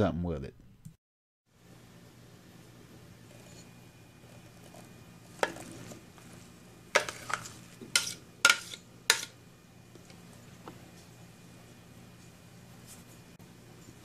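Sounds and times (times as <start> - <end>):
metal spoon scraping a bowl: 7.0 - 9.3.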